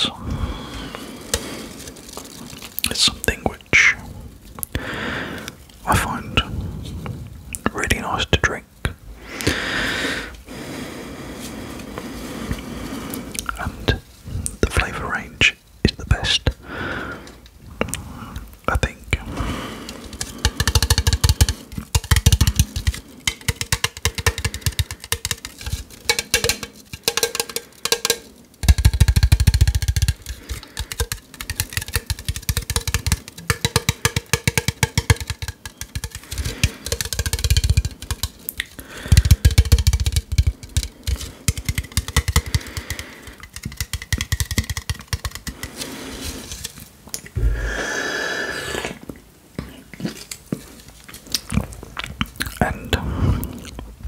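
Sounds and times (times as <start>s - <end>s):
low thumps on can: 19.3s - 45.8s
fingers tapping on aluminium can: 19.9s - 45.8s
person sipping from can: 45.4s - 50.4s.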